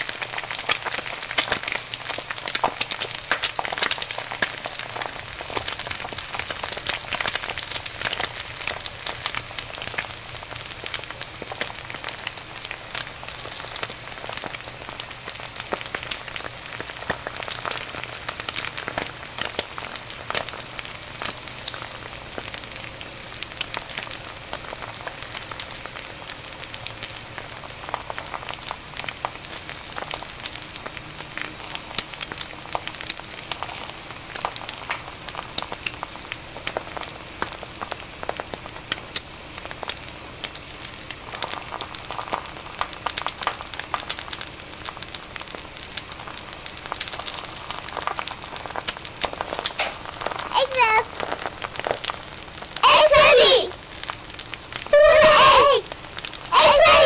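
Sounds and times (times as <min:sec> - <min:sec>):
egg sizzling in a frying pan: 0:00.0 - 0:57.0.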